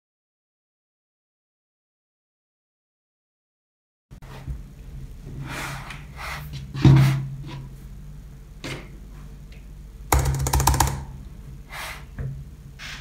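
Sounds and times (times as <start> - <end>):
steady low hum: 4.1 - 13.0
keyboard keys clicking: 10.2 - 11.1.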